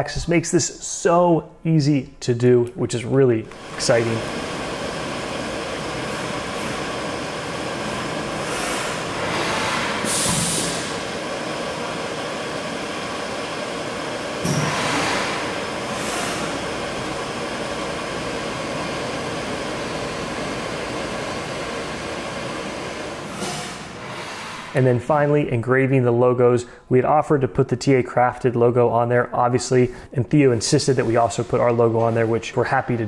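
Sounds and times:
machine running: 3.4 - 25.4
coolant spraying hiss: 3.5 - 25.0.

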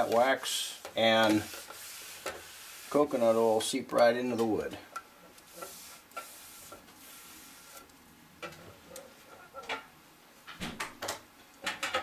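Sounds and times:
faint hiss: 0.0 - 8.1.

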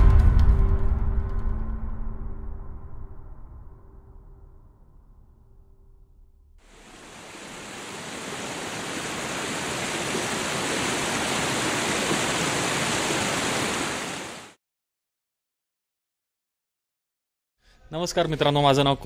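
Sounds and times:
river water rushing over rocks: 6.7 - 14.6.

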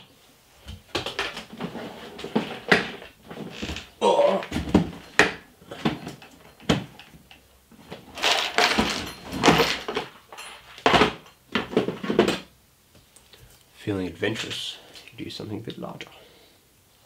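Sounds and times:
metal tools knocking and clattering: 7.9 - 12.5.

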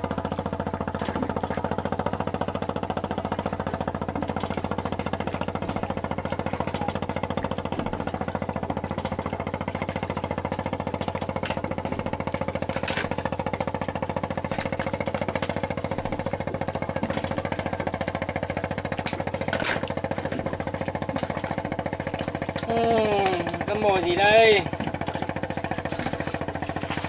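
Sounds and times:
boat diesel engine running: 0.0 - 27.0.

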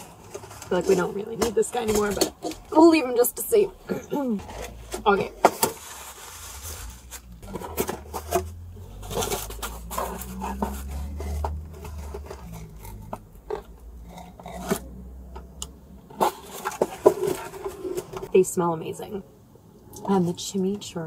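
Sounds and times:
food packaging clicks and rustles: 0.0 - 2.8, 4.4 - 14.9.

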